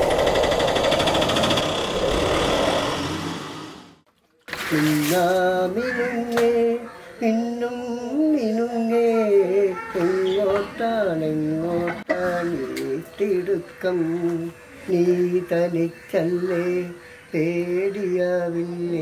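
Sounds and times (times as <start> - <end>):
small engine rattling: 0.0 - 4.0.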